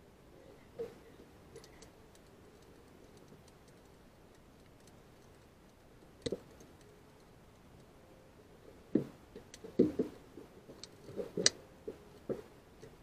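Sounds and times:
faint metallic clicks and taps: 0.8 - 7.9.

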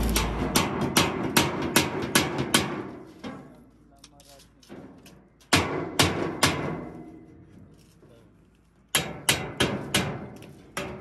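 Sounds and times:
hammer striking steel pipe: 0.0 - 2.8.

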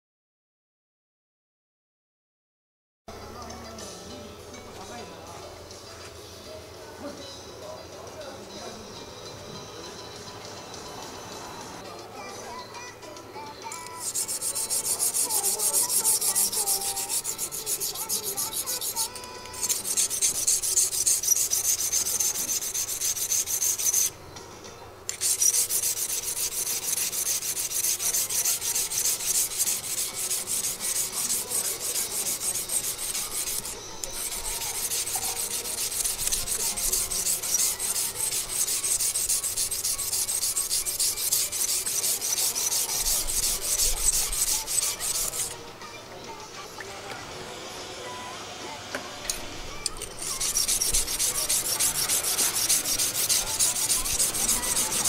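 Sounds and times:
knife scraping on whetstone: 13.8 - 24.1, 25.1 - 45.6, 49.9 - 55.0.

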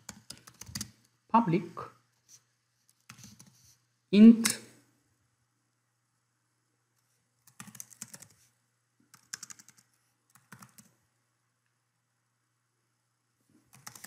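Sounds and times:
computer keyboard typing: 0.0 - 1.0, 2.9 - 3.6, 7.4 - 8.4, 9.1 - 11.0, 13.7 - 14.0.

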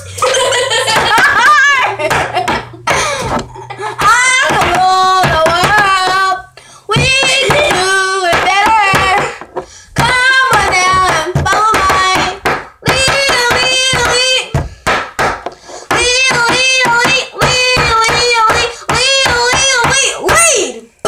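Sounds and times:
girl singing long notes: 3.6 - 9.4, 10.0 - 14.7, 15.9 - 20.9
hand claps and slaps: 10.0 - 20.0.

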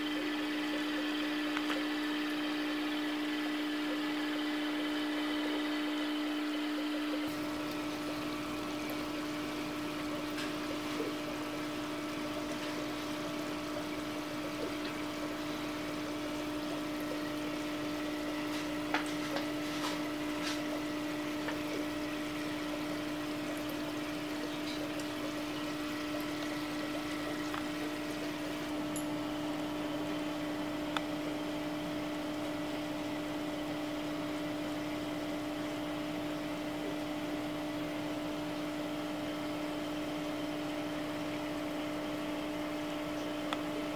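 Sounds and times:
running water: 0.0 - 30.8
aquarium pump humming: 0.0 - 43.9.

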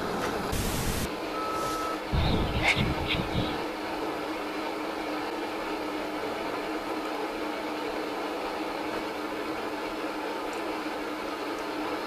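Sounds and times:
low constant hum: 0.0 - 12.0
static hiss: 0.4 - 3.8.

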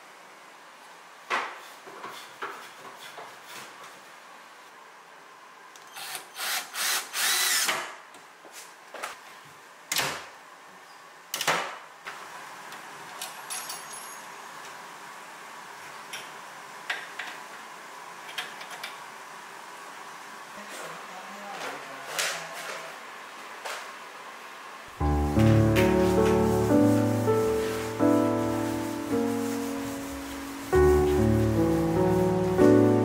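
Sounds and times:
cordless driver whirring: 5.8 - 7.8.

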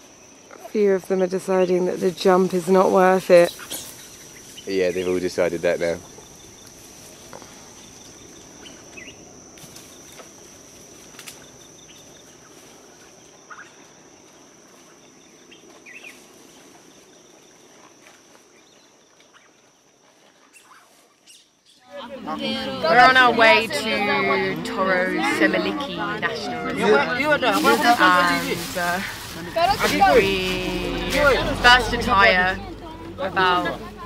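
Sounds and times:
bird chirps: 7.8 - 9.2, 15.0 - 16.2, 20.5 - 21.9.

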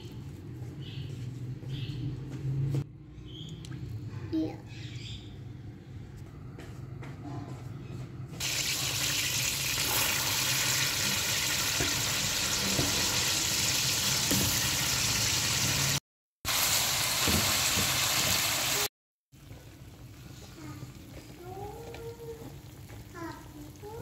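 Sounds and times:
oil sizzling in a pan: 8.4 - 24.0.

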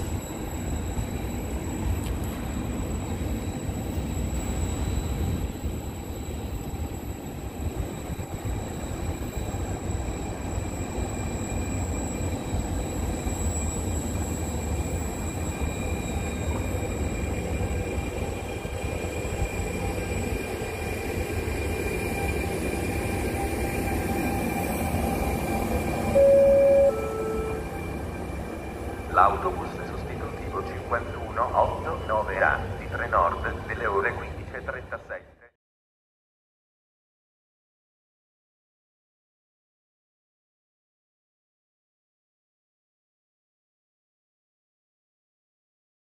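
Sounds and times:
train wheels rumbling on rails: 0.0 - 34.9
faint high whine: 21.6 - 35.2
two-note falling tone: 26.2 - 27.8.

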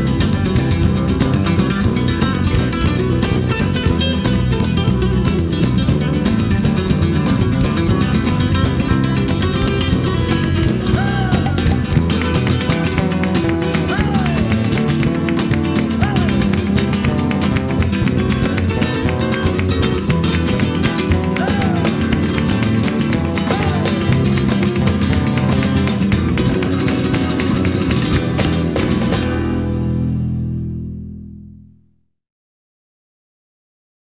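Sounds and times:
acoustic guitars strummed fast: 0.0 - 31.3
bass line: 0.0 - 32.0.

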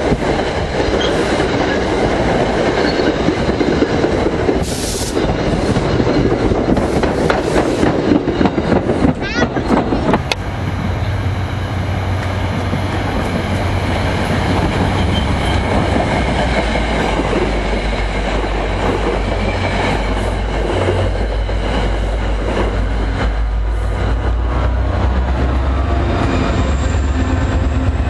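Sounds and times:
steel wheels clattering on rails: 0.0 - 11.0
train passing at speed: 0.0 - 28.0.

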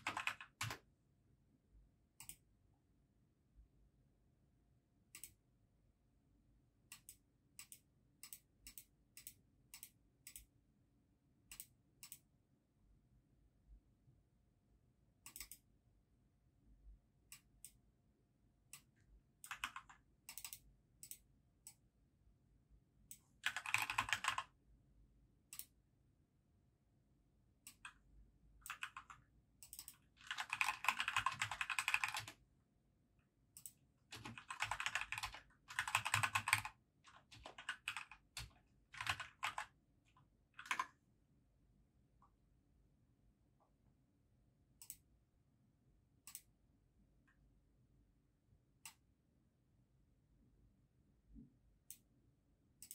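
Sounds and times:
typing on a computer keyboard: 0.0 - 0.9, 15.3 - 15.7, 18.7 - 21.8, 23.1 - 24.6, 27.7 - 28.0, 28.6 - 32.4, 33.6 - 39.8, 40.6 - 41.0.

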